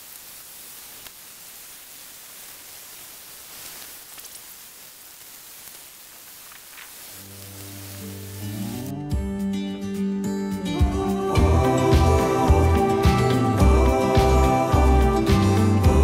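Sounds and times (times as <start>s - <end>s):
faint ticks and rustles: 0.0s - 8.6s
outdoor background hiss: 0.0s - 9.0s
background music: 7.3s - 16.0s.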